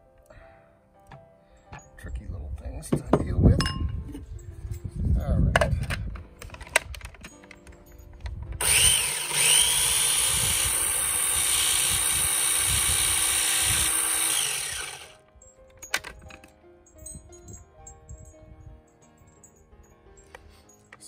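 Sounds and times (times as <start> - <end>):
electric blender running: 8.6 - 15.2.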